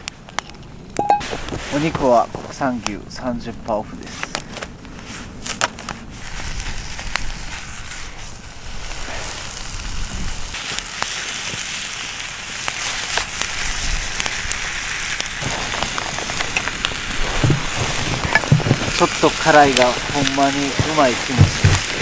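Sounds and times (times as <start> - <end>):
meat sizzling: 5.5 - 22.0.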